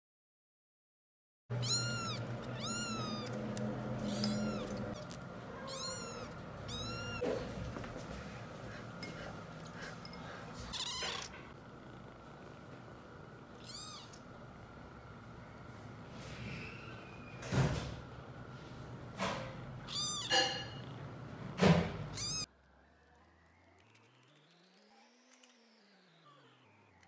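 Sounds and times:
kittens mewing: 1.5 - 7.4, 10.6 - 11.5, 13.5 - 14.2, 19.8 - 21.0, 22.0 - 22.5.

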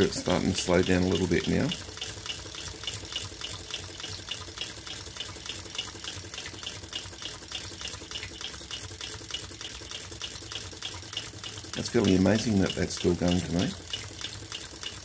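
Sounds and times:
light regular machinery clicks: 0.0 - 15.0
stirling engine running: 6.9 - 15.0.

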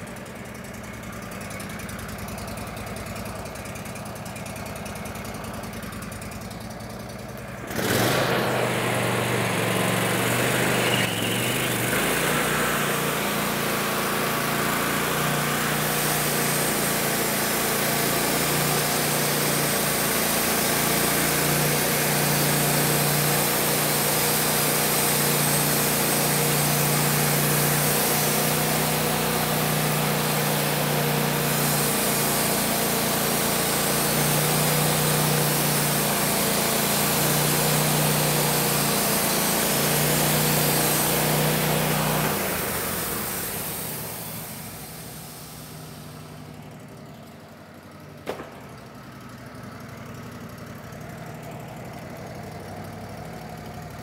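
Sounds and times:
sawmill engine running: 0.0 - 54.0
band blade cutting wood: 7.7 - 44.7.

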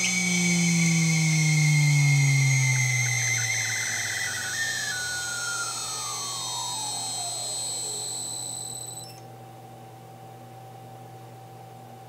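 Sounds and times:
irregular chirping: 0.0 - 9.2
spindle motor whine spinning down: 0.0 - 9.2
high steady whine: 0.0 - 9.3.

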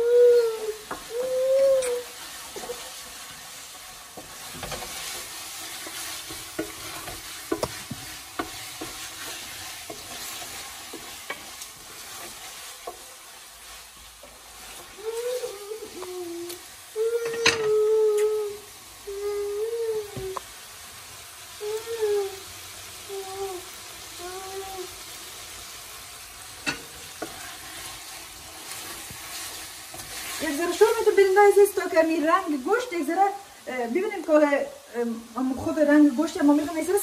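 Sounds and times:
chicken sizzling in a pot: 0.0 - 37.0
wooden spoon scraping pot: 2.1 - 16.1, 26.7 - 31.0.

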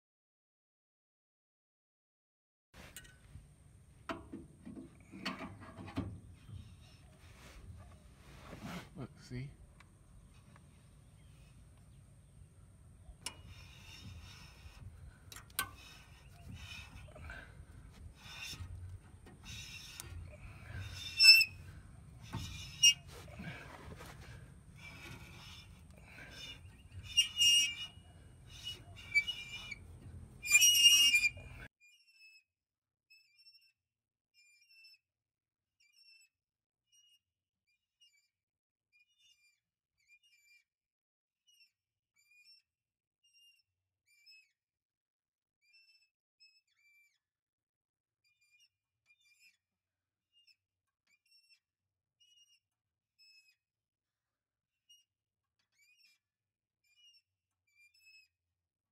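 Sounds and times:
hand reamer rasping on metal: 13.2 - 31.7
faint bird chirps: 24.3 - 32.4.

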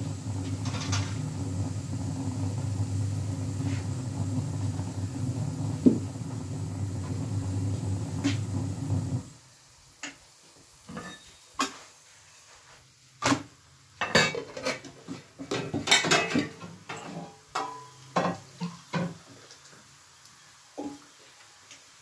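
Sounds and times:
metal kitchenware clatter: 10.9 - 11.8, 14.0 - 14.9, 15.5 - 19.2.

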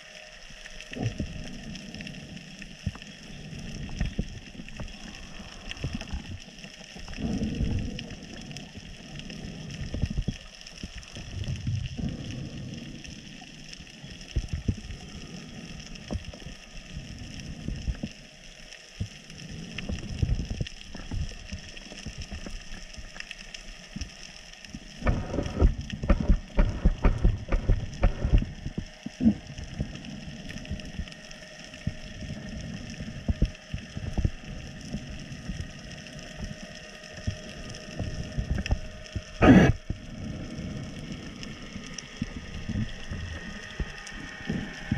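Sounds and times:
underwater low rushing: 0.0 - 44.9.

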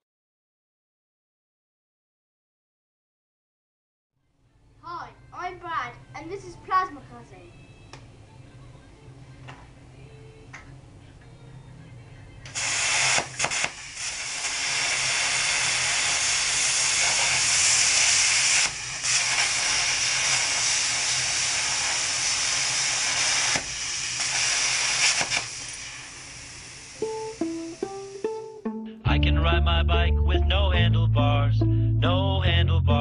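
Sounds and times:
plasma cutter hissing: 12.4 - 28.3.

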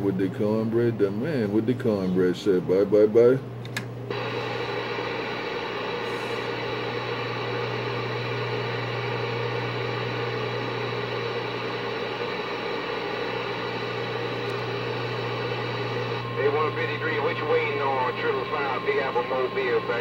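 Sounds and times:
steady low hum: 0.0 - 20.0
radio static hiss: 4.1 - 20.0.

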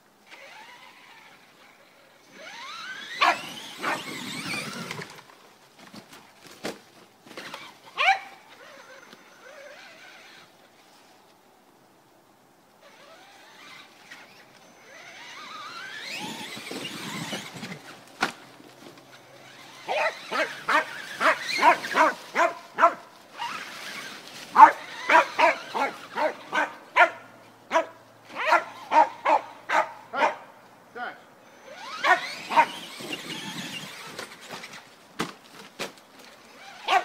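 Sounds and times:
electric motor whine: 0.2 - 5.4, 12.8 - 27.0, 31.4 - 34.9
dog barking rapidly: 3.1 - 4.6, 8.0 - 8.4, 19.9 - 23.0, 24.6 - 30.5, 31.9 - 32.8.

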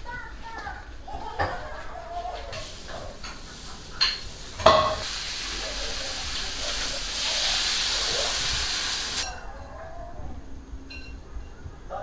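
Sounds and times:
hot oil sizzling: 2.6 - 9.3
pot clanking: 2.8 - 5.1.

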